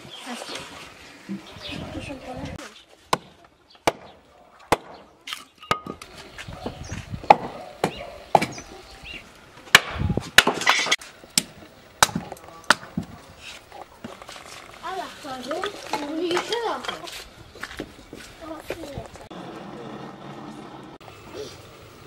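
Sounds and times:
wood chopping knocks: 3.1s - 5.0s, 7.2s - 8.6s.

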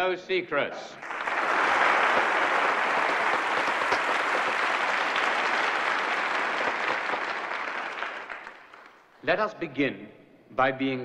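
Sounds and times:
crowd applause: 1.0s - 9.1s.

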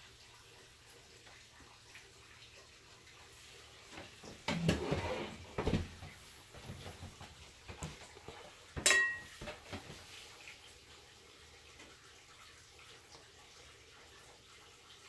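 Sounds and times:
ringing clink of tableware: 8.8s - 9.4s.

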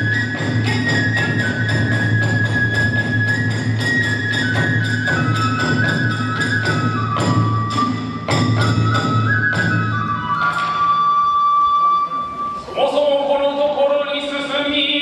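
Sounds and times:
hand cymbals: 0.0s - 11.1s
bamboo flute melody: 0.0s - 13.8s.

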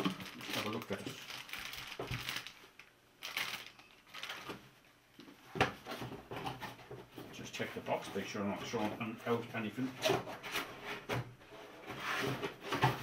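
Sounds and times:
plastic bag crinkling: 0.0s - 4.8s.

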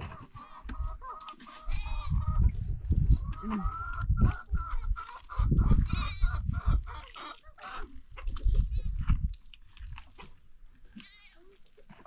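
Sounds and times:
farm animals calling: 0.0s - 9.1s, 10.9s - 12.0s.

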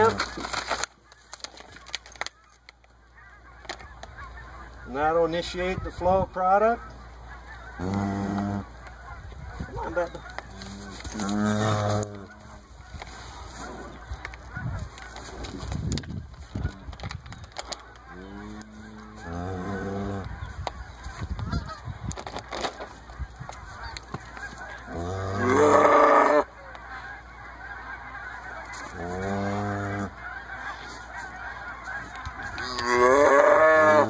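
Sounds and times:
calf bawling: 7.5s - 14.0s, 23.6s - 26.8s, 27.7s - 34.0s.

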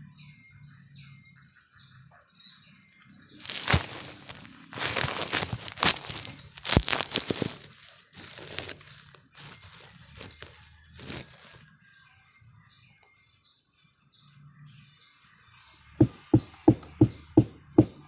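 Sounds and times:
handling knocks: 16.0s - 18.0s
mallet beating a flower stalk: 16.0s - 18.0s.

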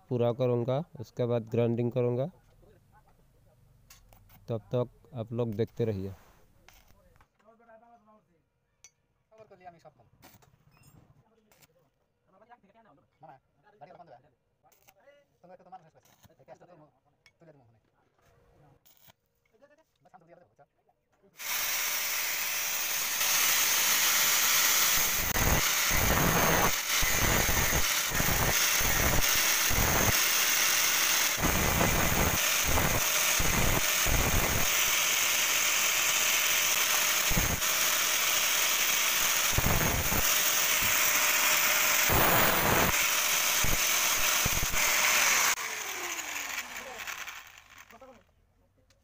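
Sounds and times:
angle grinder whining: 21.4s - 48.2s
grinding against metal part: 21.4s - 48.2s.

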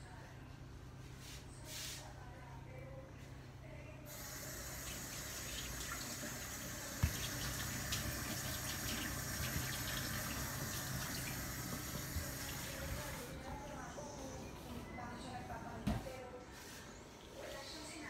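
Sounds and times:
tap water running into steel sink: 4.1s - 13.0s.

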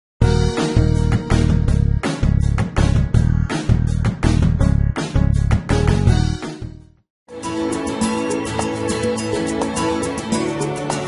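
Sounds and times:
music with pulsing bass beat: 0.2s - 6.8s.

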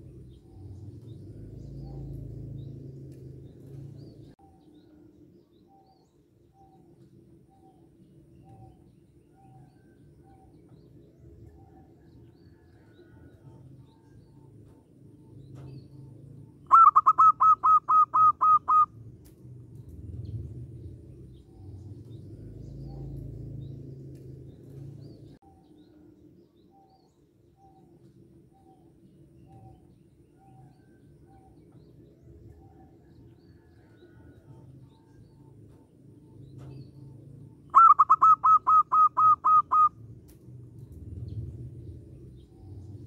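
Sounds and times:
faint bird chirps: 0.0s - 19.0s, 20.3s - 40.1s
dove cooing: 16.7s - 18.9s, 37.7s - 40.0s.

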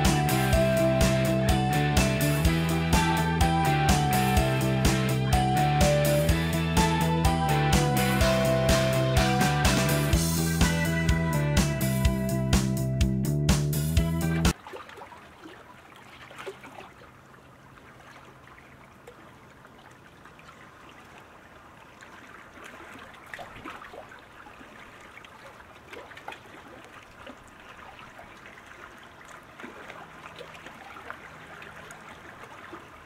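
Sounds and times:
water trickling and dripping: 14.4s - 33.0s.

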